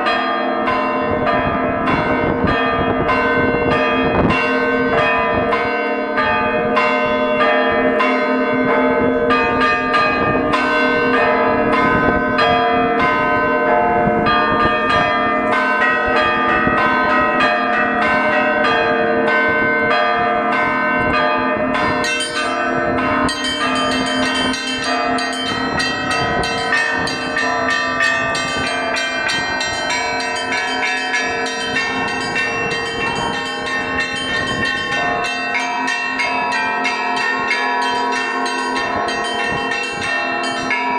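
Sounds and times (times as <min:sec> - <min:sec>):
hum of large bells: 0:00.0 - 0:40.9
small bells chiming quickly: 0:22.0 - 0:40.9.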